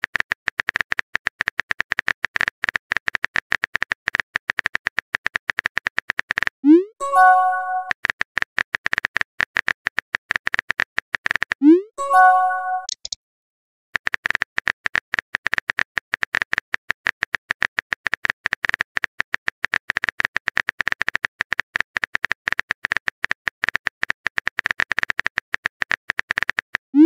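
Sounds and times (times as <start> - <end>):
phone keyboard typing clicks: 12.4 - 13.2.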